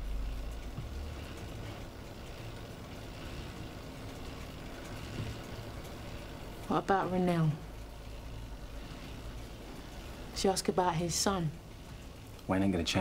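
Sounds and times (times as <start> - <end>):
low background rumble: 0.0 - 12.5.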